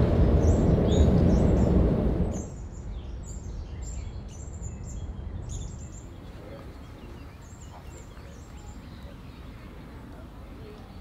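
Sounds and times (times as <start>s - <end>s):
car road noise: 0.0s - 2.5s
small birds chirping: 0.0s - 11.0s.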